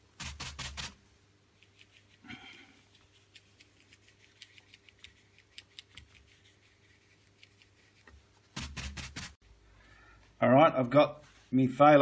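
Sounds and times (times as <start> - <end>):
brush bristles scratching canvas: 0.2 - 1.0, 1.6 - 9.4.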